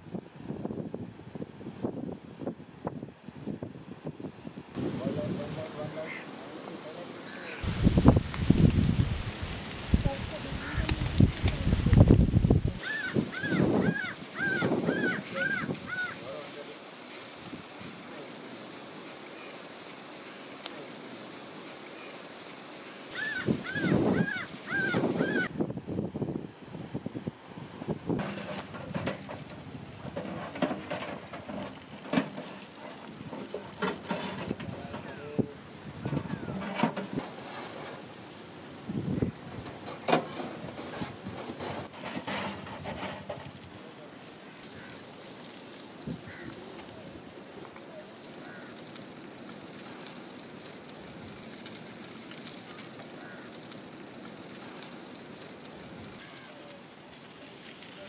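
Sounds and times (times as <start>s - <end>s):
wind on microphone: 0.0s - 5.8s, 7.6s - 16.1s, 23.2s - 30.4s, 34.4s - 37.4s, 38.8s - 39.8s, 46.0s - 47.2s
charcoal fire crackling and sizzling: 0.0s - 58.0s.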